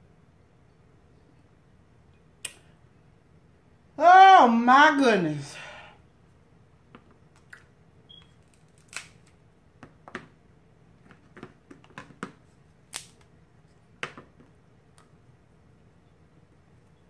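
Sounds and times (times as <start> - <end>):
crab shells cracking: 8.4 - 9.4.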